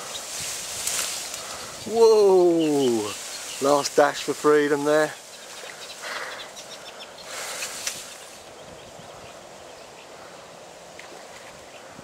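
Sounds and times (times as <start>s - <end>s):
wind through reeds and trees: 0.0s - 12.0s
faint bird chirps: 1.2s - 3.9s, 5.1s - 10.5s.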